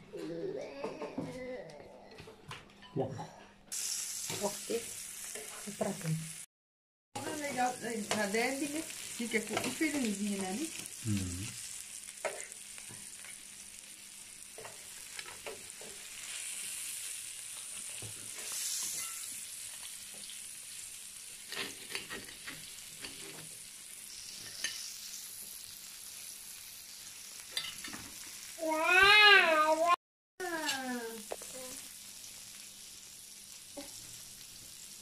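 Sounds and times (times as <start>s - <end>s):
meat sizzling on a grill plate: 3.7s - 6.5s, 7.2s - 35.0s
fork scraping a grill plate: 21.4s - 23.5s, 24.1s - 25.2s.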